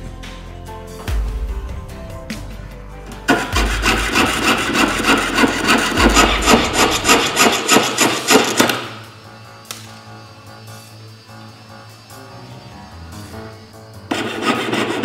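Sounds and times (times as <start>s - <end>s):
saw cutting thin metal plate: 3.3s - 9.0s, 13.2s - 15.0s.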